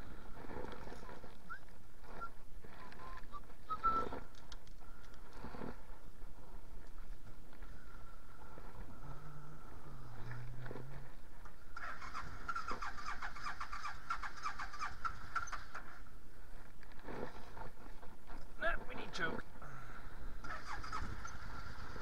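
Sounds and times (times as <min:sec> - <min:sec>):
motorcycle starter motor cranking: 0:11.8 - 0:15.9, 0:20.4 - 0:22.0.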